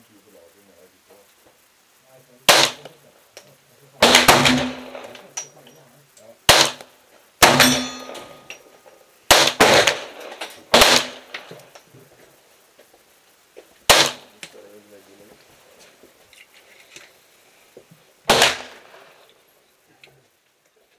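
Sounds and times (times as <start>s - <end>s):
pistol shots with echo: 2.5s - 3.0s, 4.0s - 5.5s, 6.5s - 8.6s, 9.3s - 11.6s, 13.9s - 14.3s, 18.3s - 19.2s.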